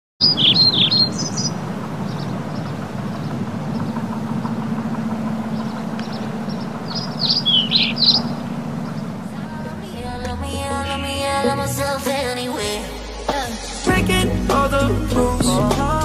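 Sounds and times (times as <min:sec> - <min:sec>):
birds chirping: 0:00.2 - 0:12.4
steady low rumble: 0:00.3 - 0:16.0.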